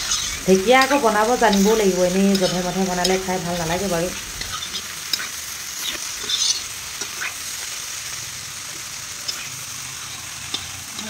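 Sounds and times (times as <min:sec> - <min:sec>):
metal spatula scraping a pan: 0:00.0 - 0:07.5
vegetables sizzling in a wok: 0:00.0 - 0:11.0.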